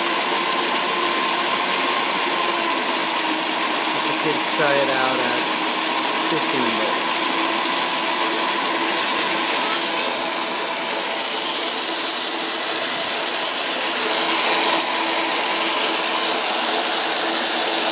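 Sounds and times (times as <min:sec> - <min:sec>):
electric motor whining: 0:00.0 - 0:17.9.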